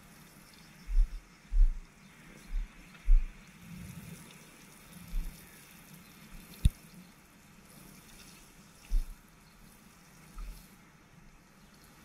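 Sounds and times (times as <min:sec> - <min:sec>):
low thumps: 0:02.5 - 0:03.3
water sprinkling onto soil: 0:03.4 - 0:10.8.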